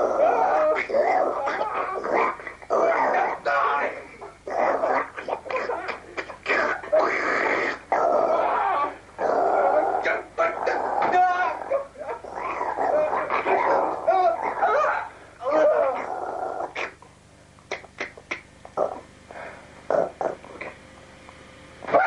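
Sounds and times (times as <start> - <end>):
animal-like growling and whimpering: 0.0 - 17.0, 19.9 - 20.7.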